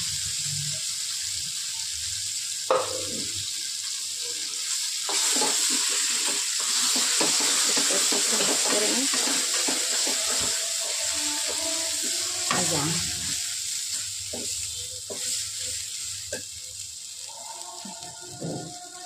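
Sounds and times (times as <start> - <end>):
food sizzling in a metal pan: 0.0 - 19.0
wooden spatula scraping a pan: 5.1 - 16.4.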